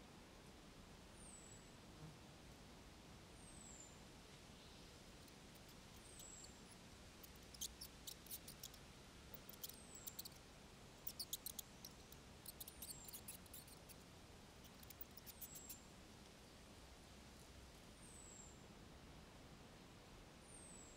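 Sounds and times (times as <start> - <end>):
mice squeaking: 5.6 - 10.4, 11.0 - 14.0, 14.6 - 15.8.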